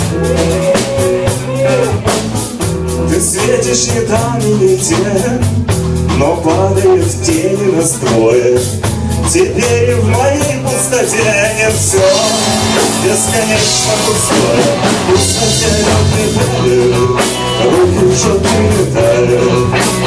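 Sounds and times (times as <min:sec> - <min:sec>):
electric guitars: 0:00.0 - 0:20.0
drum hits: 0:08.1 - 0:20.0
pitch-bending melody line: 0:09.7 - 0:20.0.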